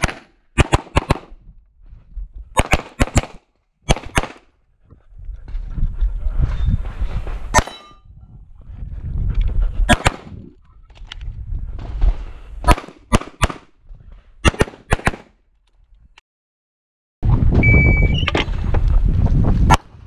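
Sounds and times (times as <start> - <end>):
pistol shots: 0.0 - 1.3, 2.6 - 4.4, 9.9 - 10.3, 12.7 - 13.7, 14.4 - 15.3
low rumble of movement: 4.6 - 12.5, 17.2 - 19.7.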